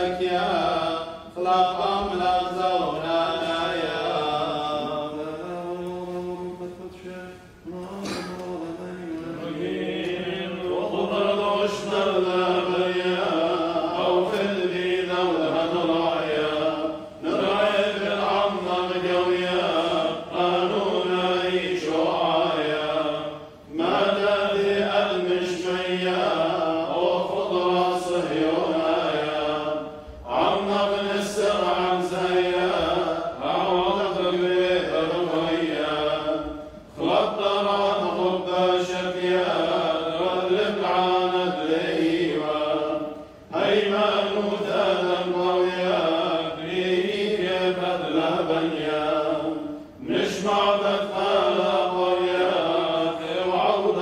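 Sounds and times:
clergy chanting: 0.0s - 54.0s.

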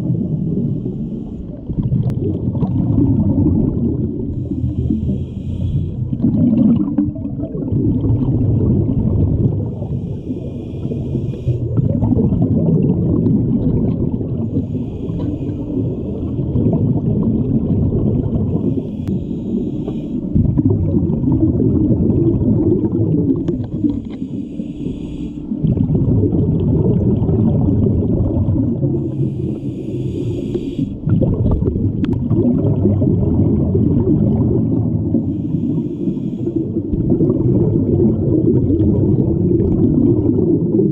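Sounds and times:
exhaled bubbles rumbling: 0.0s - 24.4s, 25.4s - 40.9s
regulator inhale hiss: 0.2s - 1.6s, 4.3s - 6.2s, 9.7s - 11.9s, 14.4s - 16.5s, 18.4s - 20.4s, 23.4s - 25.7s, 29.0s - 31.1s, 35.1s - 36.9s.

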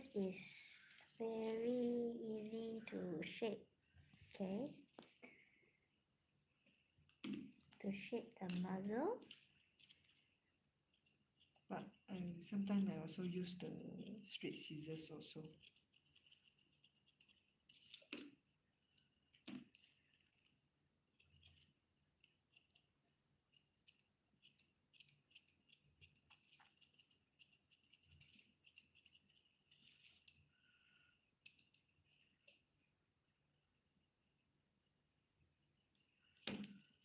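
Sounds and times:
scissors snipping fur: 11.0s - 18.3s, 22.5s - 22.9s, 23.5s - 29.4s.

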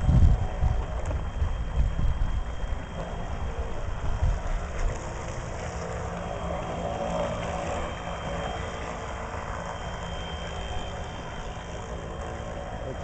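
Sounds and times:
wind buffeting microphone: 0.0s - 9.5s
model boat electric motor hum: 0.0s - 13.0s.

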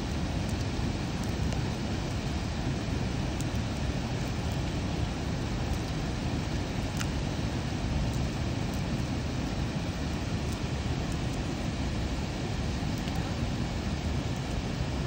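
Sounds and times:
faint light clicks: 6.9s - 7.2s.

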